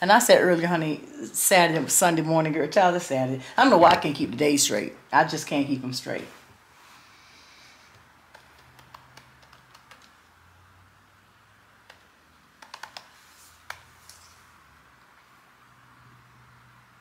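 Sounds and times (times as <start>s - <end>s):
computer keyboard typing: 8.3s - 10.2s, 11.8s - 13.9s.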